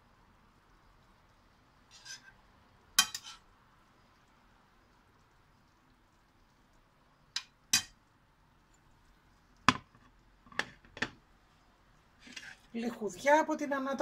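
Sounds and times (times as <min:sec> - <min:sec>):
kitchenware clinking on frying pan: 0:03.0 - 0:03.4, 0:07.4 - 0:08.0.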